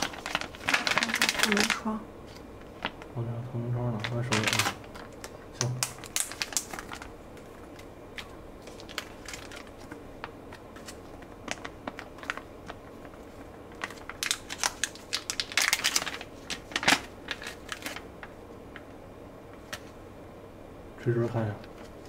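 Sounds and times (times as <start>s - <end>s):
foil pouch crinkling: 0.0s - 3.1s, 3.9s - 18.4s.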